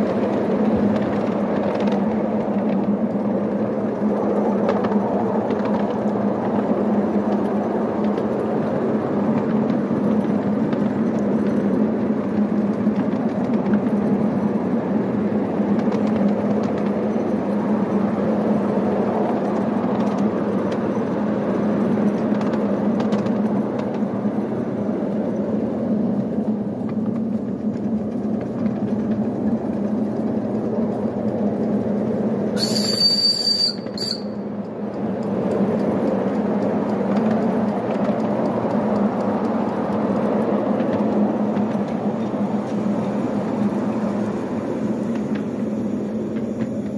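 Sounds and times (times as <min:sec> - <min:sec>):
small wheels rumbling on track: 0:00.0 - 0:46.9
steam locomotive running: 0:00.0 - 0:46.9
high steam whistle: 0:32.6 - 0:34.5.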